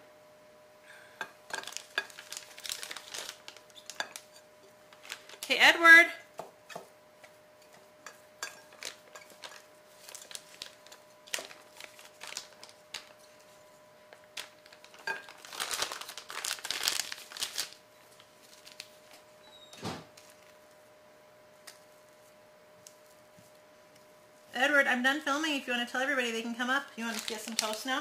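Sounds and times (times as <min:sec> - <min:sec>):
plastic crinkling: 0:01.5 - 0:05.5, 0:08.5 - 0:19.2, 0:26.8 - 0:28.0.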